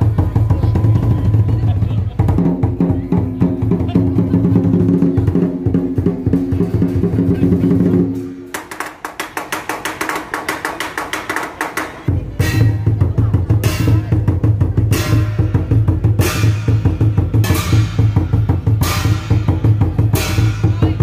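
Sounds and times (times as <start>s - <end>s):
big drum beating: 0.0s - 21.0s
clashing cymbals: 11.7s - 21.0s.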